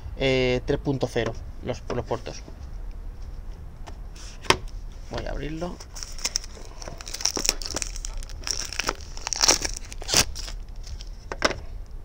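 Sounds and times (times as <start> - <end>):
plastic wrap crinkling: 5.6 - 11.3.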